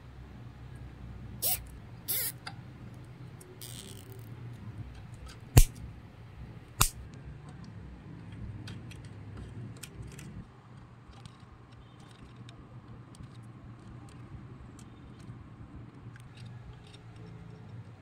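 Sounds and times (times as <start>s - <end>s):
side cutters snipping: 1.4s - 2.4s, 5.5s - 5.9s, 6.8s - 7.0s
cable tie ratcheting: 1.4s - 2.5s, 3.5s - 4.3s
small plastic clicks: 3.4s - 4.3s.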